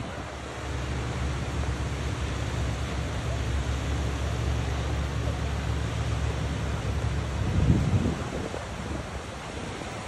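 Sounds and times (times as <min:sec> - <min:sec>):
small waves breaking: 0:00.0 - 0:10.0
wind buffeting microphone: 0:06.9 - 0:10.0.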